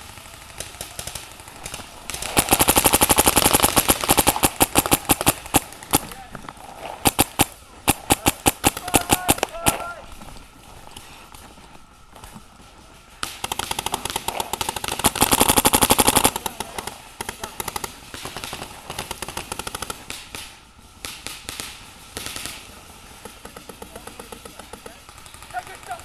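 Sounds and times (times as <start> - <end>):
paintball markers firing: 0.0 - 11.5, 13.2 - 26.0.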